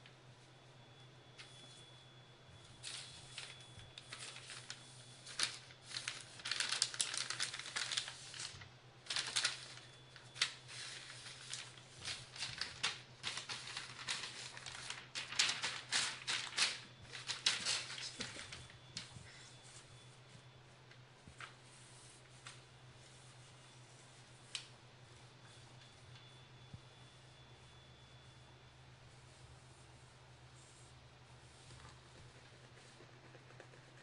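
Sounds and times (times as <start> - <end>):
newspaper rustling and crinkling: 2.7 - 24.7.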